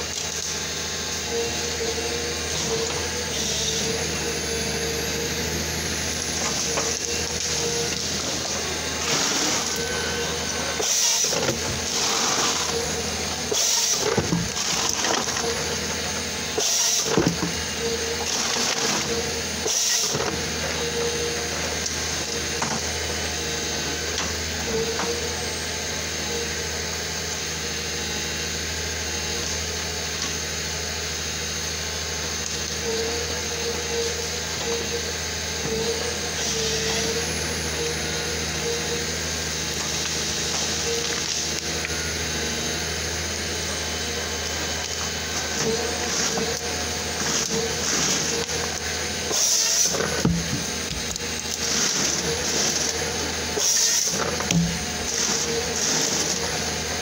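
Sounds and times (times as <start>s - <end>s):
diesel engine running: 0.0s - 57.0s
hydraulic whine: 0.0s - 57.0s
loud noisy bursts of harvester head: 2.4s - 20.8s, 44.7s - 57.0s.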